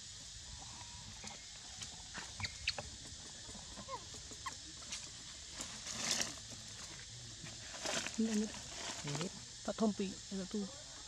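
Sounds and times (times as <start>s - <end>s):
steady high hiss: 0.0s - 11.0s
monkeys squeaking and chirping: 2.4s - 2.8s.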